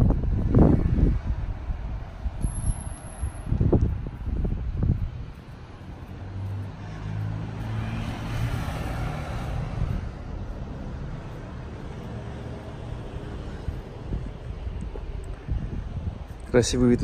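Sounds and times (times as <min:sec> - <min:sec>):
vehicle driving past: 0:05.7 - 0:16.1.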